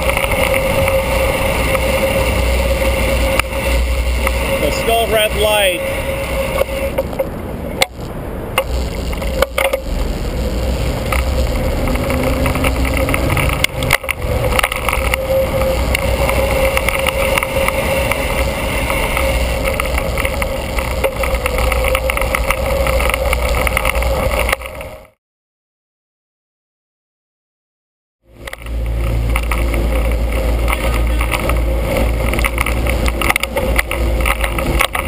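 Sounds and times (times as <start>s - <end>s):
bicycle clicks and knocks: 0.0s - 4.8s, 8.6s - 10.0s, 10.8s - 25.1s, 28.4s - 35.0s
steady hum: 0.0s - 25.1s, 28.3s - 35.0s
road and tyre noise: 0.0s - 25.2s, 28.2s - 35.0s
wind rumble on microphone: 0.0s - 25.2s, 28.3s - 35.0s.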